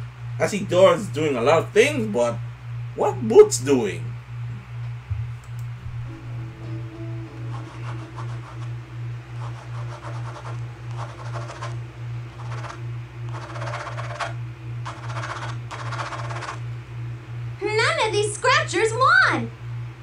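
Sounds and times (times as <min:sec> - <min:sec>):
low pulsing hum: 0:00.0 - 0:20.0
lottery tickets being scratched: 0:07.5 - 0:08.8, 0:09.4 - 0:16.6.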